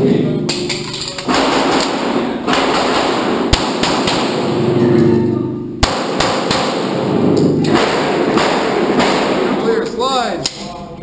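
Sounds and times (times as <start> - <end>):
loud noisy background: 0.0 - 11.0
pistol shots: 0.5 - 4.7, 5.8 - 9.8.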